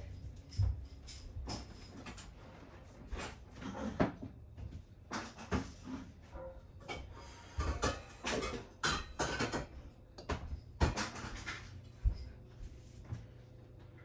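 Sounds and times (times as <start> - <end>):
kitchen knocks and clatter: 0.0 - 2.4, 3.1 - 12.4.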